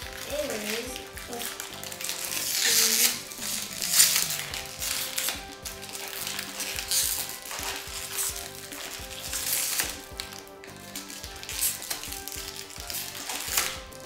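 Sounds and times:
plastic packet crinkling: 0:00.0 - 0:14.0.

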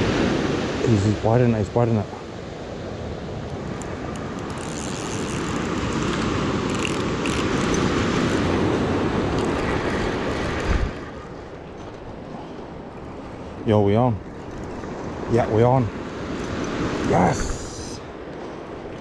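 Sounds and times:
surf washing on beach: 0:00.0 - 0:19.0.

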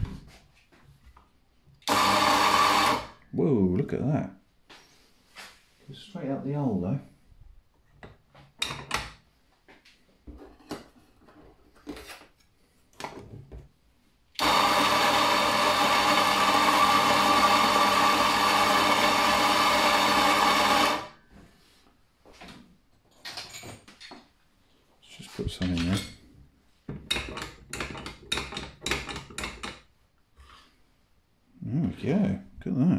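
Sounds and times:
coffee grinder humming: 0:01.8 - 0:03.2, 0:14.4 - 0:21.2.

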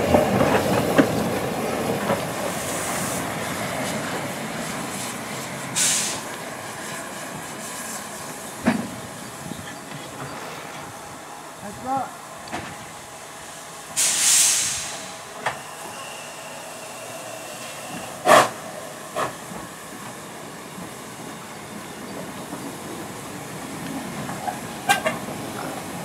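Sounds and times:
steam hissing: 0:01.7 - 0:26.0
steam locomotive exhaust blasts: 0:02.3 - 0:21.3.

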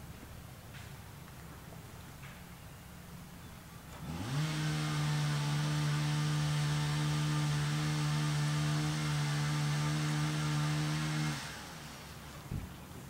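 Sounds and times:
small motor humming: 0:03.9 - 0:12.6.

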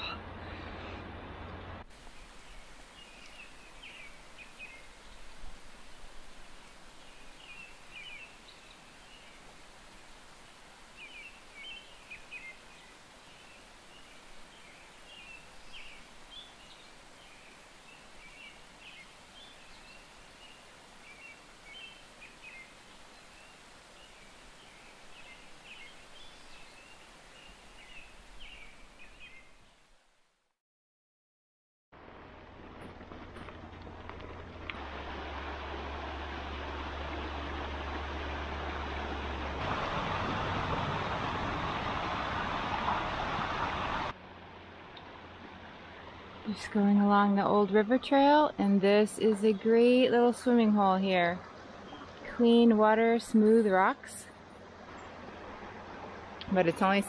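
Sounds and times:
faint outdoor background noise: 0:00.0 - 0:30.5, 0:32.0 - 0:57.0
small birds chirping: 0:02.1 - 0:05.3.

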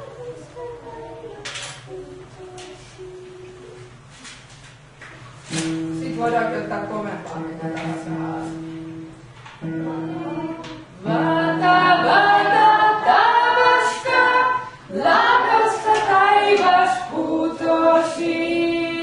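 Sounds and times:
sung melody: 0:07.6 - 0:17.3.

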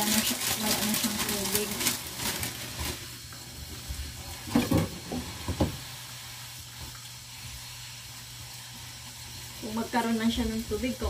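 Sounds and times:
lettuce being shaken: 0:00.0 - 0:03.1.

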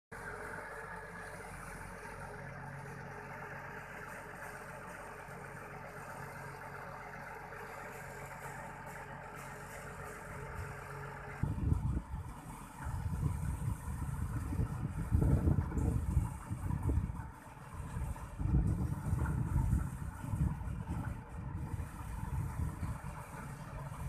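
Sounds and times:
engine running: 0:00.1 - 0:24.0
loud low rumble: 0:11.4 - 0:24.0.

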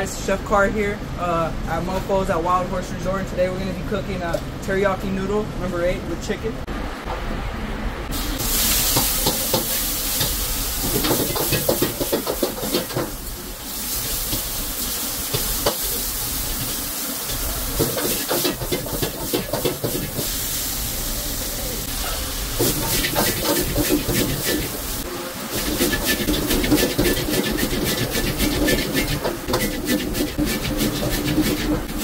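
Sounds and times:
food sizzling in a wok: 0:08.1 - 0:32.0
ladle scraping and clattering on wok: 0:08.6 - 0:13.2, 0:13.9 - 0:20.4, 0:22.6 - 0:32.0.

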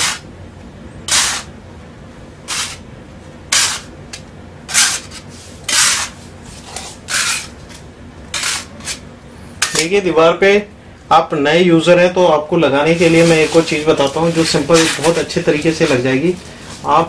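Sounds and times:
putty knife scraping floor: 0:00.0 - 0:00.2, 0:01.1 - 0:01.5, 0:02.5 - 0:02.8, 0:03.5 - 0:03.9, 0:04.7 - 0:09.0, 0:13.0 - 0:16.9.

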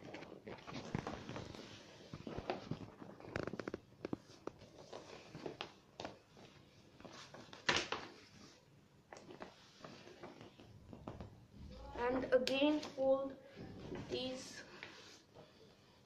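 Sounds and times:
paper rustling and crinkling: 0:00.0 - 0:11.3.

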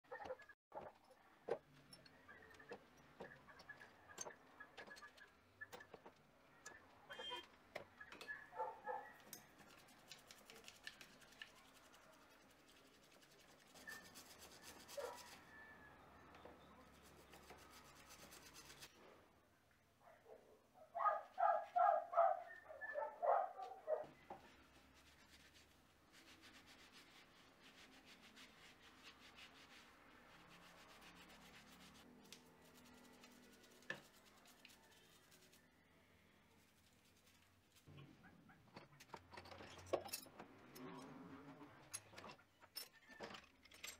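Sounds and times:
scratchy brushing and rubbing: 0:09.5 - 0:15.6, 0:16.8 - 0:19.1, 0:23.6 - 0:35.8, 0:36.4 - 0:37.9.

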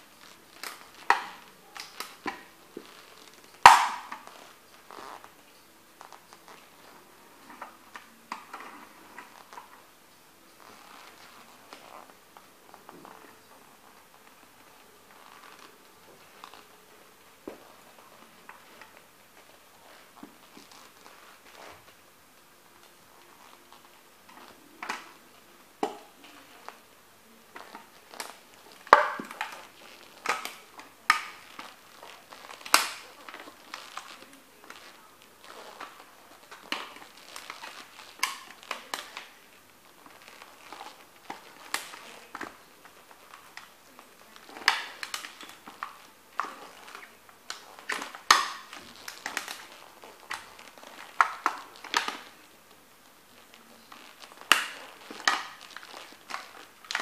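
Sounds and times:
boots crushing toy car: 0:00.0 - 0:05.3, 0:27.5 - 0:39.4, 0:40.0 - 0:52.4, 0:53.5 - 0:57.0.

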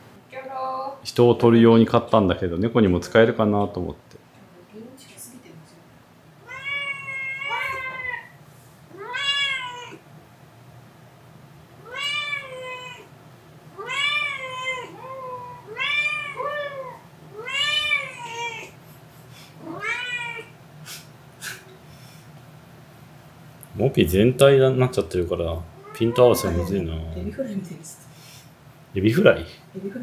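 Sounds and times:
cat meowing: 0:06.4 - 0:10.0, 0:11.8 - 0:13.1, 0:13.8 - 0:18.8, 0:19.6 - 0:20.6, 0:25.8 - 0:26.9.

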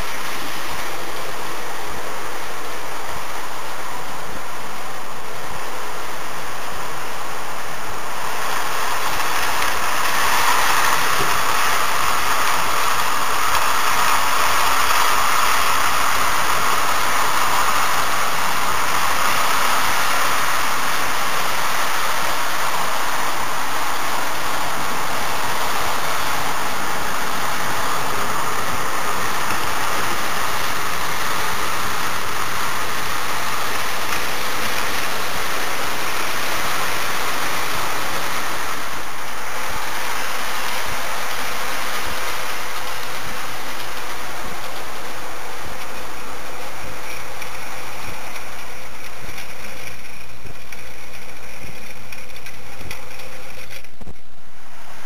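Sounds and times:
model train motor whirring: 0:00.0 - 0:55.0.

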